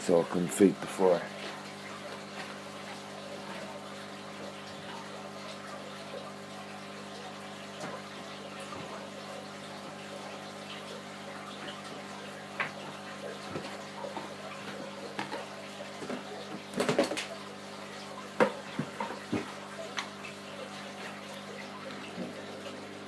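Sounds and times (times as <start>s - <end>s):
aquarium water trickling: 0.0s - 23.0s
low electrical hum: 0.0s - 23.0s.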